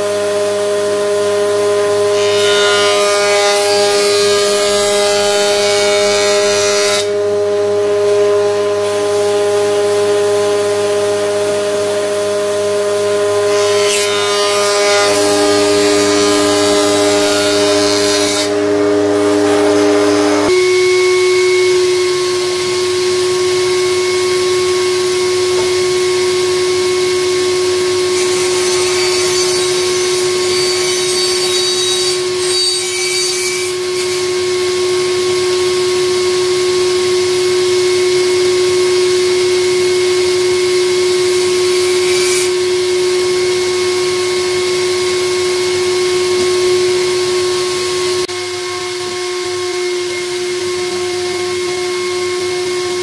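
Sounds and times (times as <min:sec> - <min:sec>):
bandsaw whining: 0:00.0 - 0:53.0
saw blade cutting wood: 0:00.2 - 0:34.6, 0:41.1 - 0:48.4.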